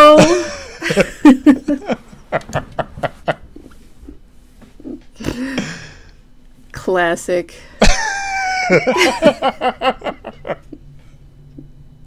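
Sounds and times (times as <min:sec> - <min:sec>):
people laughing: 0:00.1 - 0:03.5, 0:07.8 - 0:10.8.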